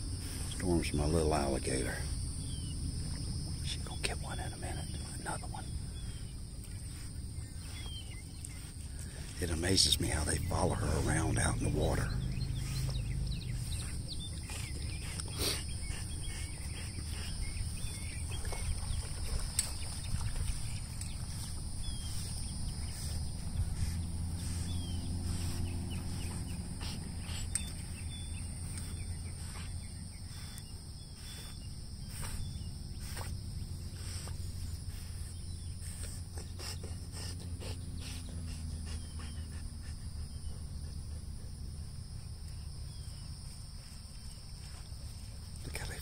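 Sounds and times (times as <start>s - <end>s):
insects droning: 0.0s - 46.0s
low hum: 0.0s - 46.0s
faint bird chirps: 0.2s - 46.0s.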